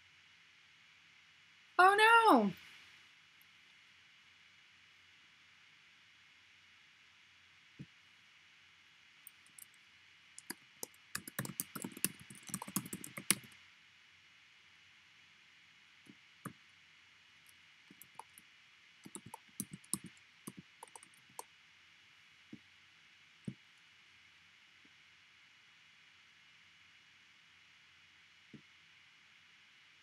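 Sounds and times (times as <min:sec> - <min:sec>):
faint rapid light clicks: 0:10.4 - 0:13.6, 0:17.9 - 0:18.4, 0:19.0 - 0:21.5.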